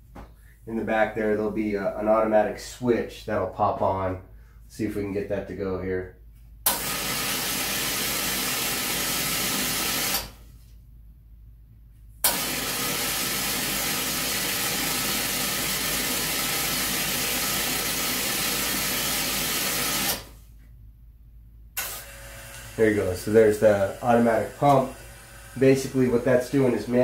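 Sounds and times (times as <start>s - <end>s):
espresso machine steam hiss: 21.8s - 26.2s.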